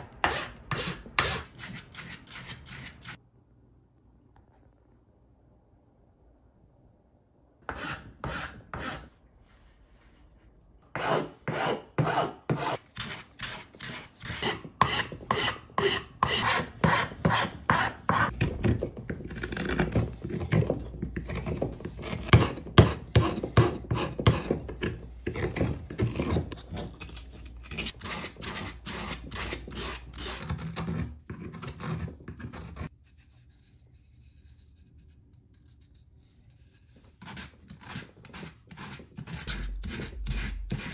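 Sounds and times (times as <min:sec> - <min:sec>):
rasp scraping wood: 0:00.2 - 0:03.2, 0:07.7 - 0:09.1, 0:10.9 - 0:32.9, 0:37.2 - 0:40.9.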